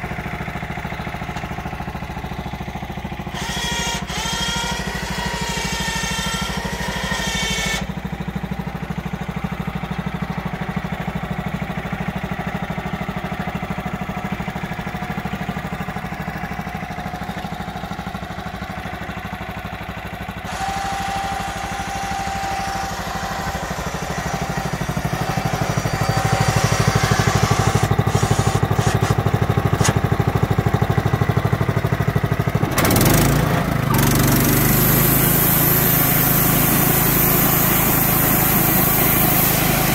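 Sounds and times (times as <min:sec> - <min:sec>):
small engine running: 0:00.0 - 0:39.9.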